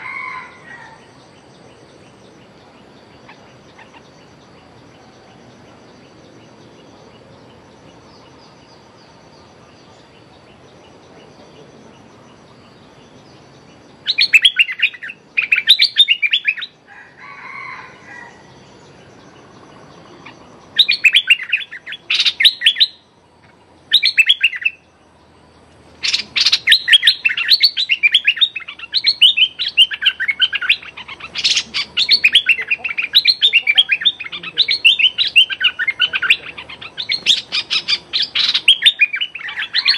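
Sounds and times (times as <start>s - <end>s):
bird chattering calls: 0.0s - 39.9s.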